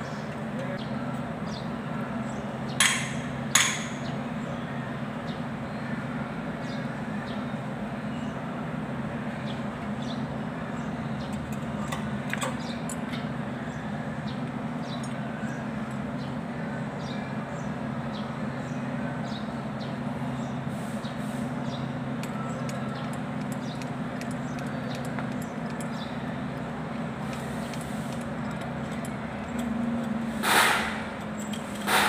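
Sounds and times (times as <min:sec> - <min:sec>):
engine drone: 0:00.0 - 0:32.0
faint metallic clicks of bolts: 0:22.2 - 0:32.0
short loud hiss: 0:30.4 - 0:31.1.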